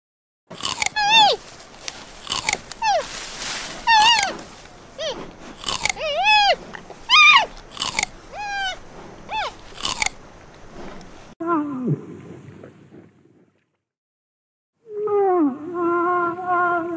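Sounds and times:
panda chewing bamboo: 0.5s - 11.4s
short high calls: 0.7s - 1.5s, 2.2s - 10.1s.

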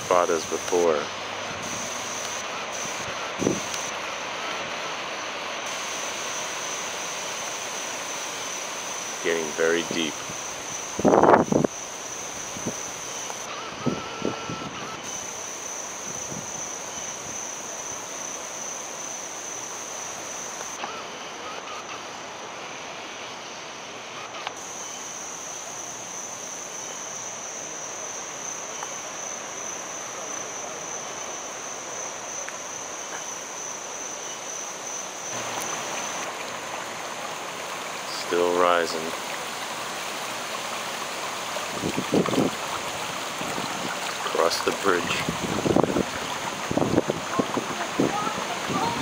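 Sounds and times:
insects trilling: 0.0s - 49.0s
water rushing and bubbling: 35.3s - 49.0s.

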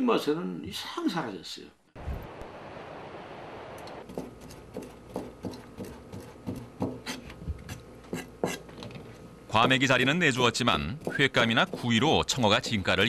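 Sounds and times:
knife chopping on plastic board: 4.1s - 7.2s, 11.0s - 12.9s.

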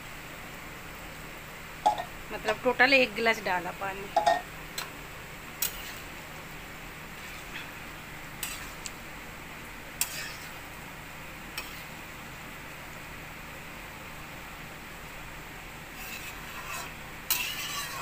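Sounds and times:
metal ladle clinking on pan: 1.9s - 2.1s, 4.2s - 4.4s.

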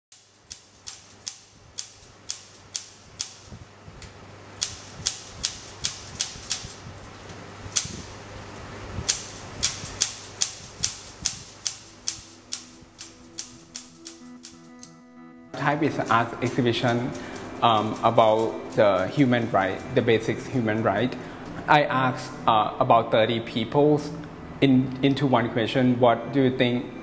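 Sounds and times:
low steady hum: 1.4s - 27.0s
music with steady notes: 11.5s - 27.0s
typewriter key strikes: 16.1s - 20.0s.

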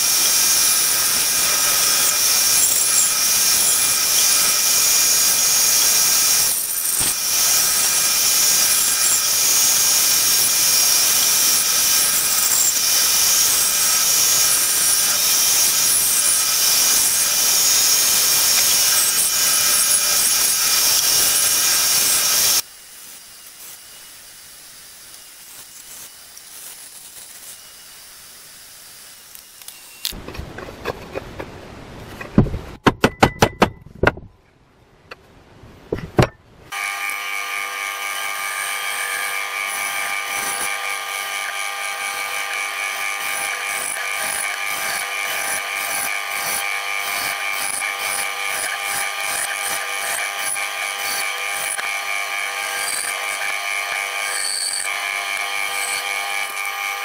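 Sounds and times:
band saw whining: 0.0s - 22.6s, 36.7s - 57.0s
sharp knocks: 32.2s - 34.3s.

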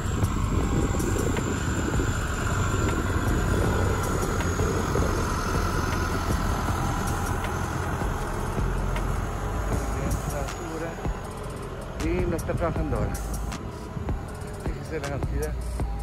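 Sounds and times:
steady whine: 0.0s - 16.0s
tractor diesel engine running: 0.0s - 16.0s.

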